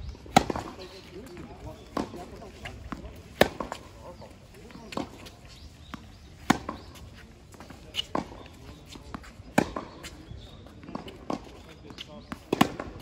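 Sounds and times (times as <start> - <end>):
tennis ball bouncing: 0.3 - 10.2, 10.8 - 13.0
racquet hitting tennis ball: 1.8 - 3.9.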